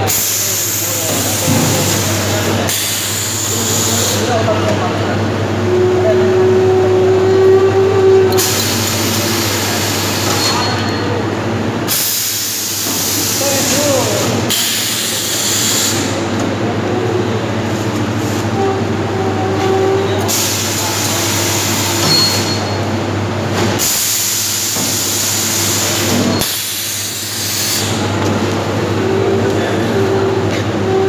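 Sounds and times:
machine hiss: 0.0s - 4.4s, 11.9s - 16.2s, 20.3s - 22.5s, 23.7s - 28.1s
machine humming: 0.0s - 31.0s.

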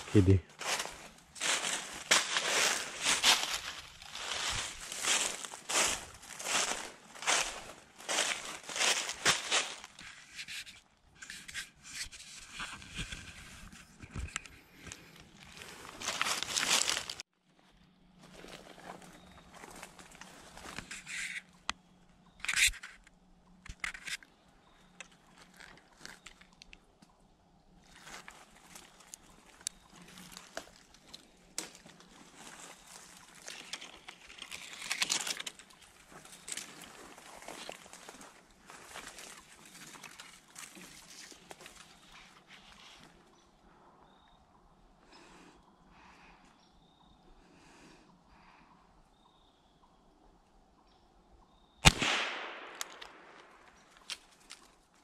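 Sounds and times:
footsteps in dry leaves: 0.0s - 10.3s, 15.3s - 17.3s, 18.2s - 21.1s, 27.8s - 43.2s
sharp clicks: 51.8s - 54.3s.

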